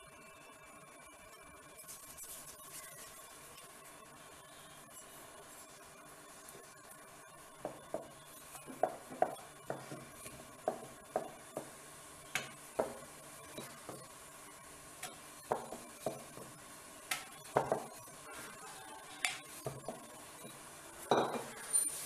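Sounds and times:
rolling pin knocking on board: 8.7s - 13.0s, 15.5s - 16.5s.

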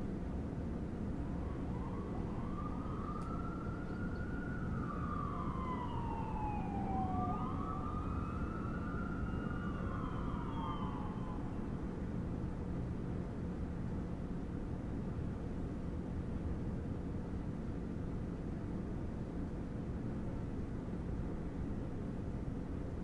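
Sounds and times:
low rumble of city traffic: 0.0s - 23.0s
emergency siren wailing: 1.1s - 12.1s.

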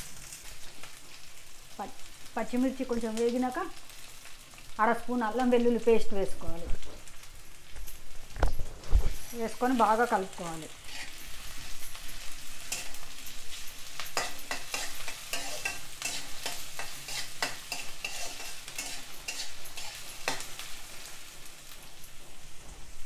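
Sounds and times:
frying sizzle: 0.0s - 23.0s
metal spatula scraping a pan: 10.6s - 21.3s.

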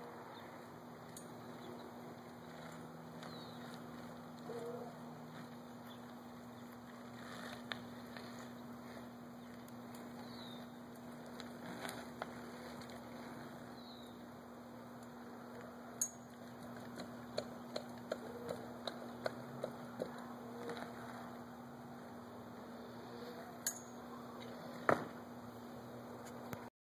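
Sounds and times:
steady low hum: 0.0s - 26.7s
light evenly spaced ticks: 0.4s - 21.4s.

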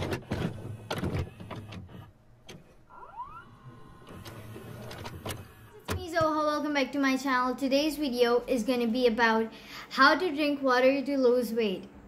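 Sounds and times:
tape mechanism clicks and clunks: 0.0s - 6.4s
short rising whine: 2.9s - 4.8s.

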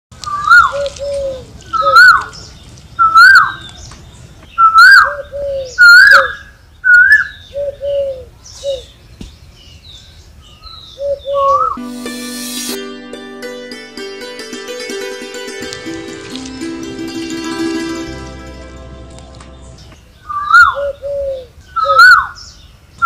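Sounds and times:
birds chirping: 0.3s - 11.8s, 18.6s - 23.0s.

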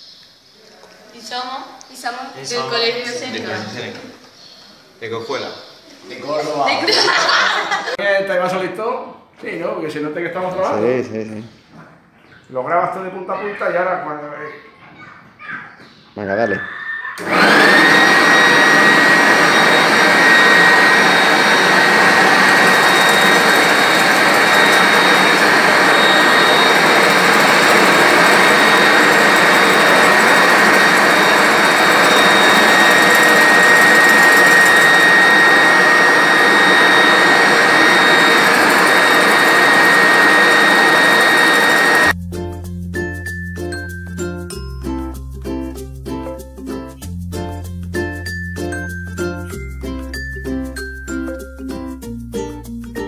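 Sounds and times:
electric motor whining: 17.2s - 42.1s
loud rushing noise: 17.2s - 42.1s.

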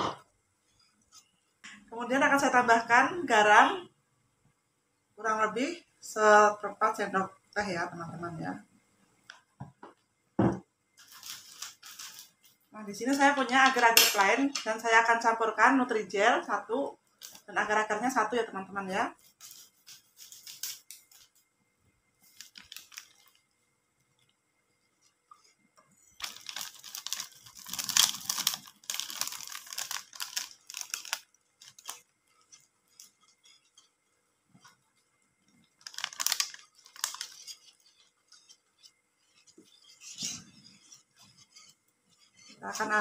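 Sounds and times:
packets crinkling: 11.0s - 12.4s, 22.2s - 23.5s, 26.2s - 33.9s, 35.5s - 42.8s
wire whisk stirring in a pan: 36.2s - 43.0s.

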